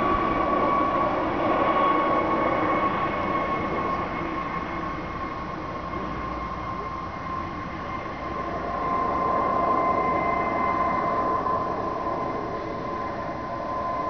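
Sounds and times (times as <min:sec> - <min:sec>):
helicopter rotor and engine noise: 0:00.0 - 0:14.0
helicopter turbine whine: 0:00.0 - 0:14.0.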